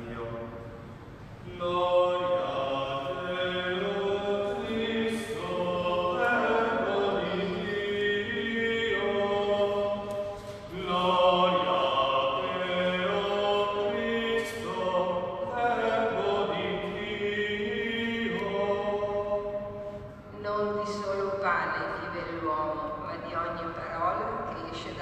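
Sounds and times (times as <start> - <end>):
voices singing: 1.4 - 21.3.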